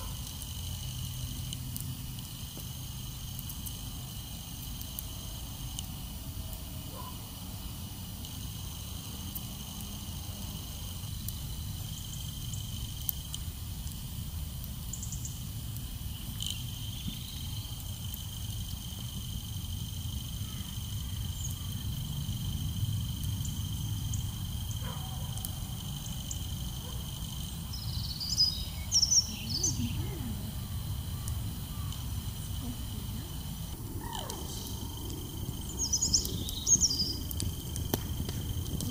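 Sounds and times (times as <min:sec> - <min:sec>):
crickets chirring: 0:00.0 - 0:38.9
low wind rumble: 0:10.8 - 0:38.9.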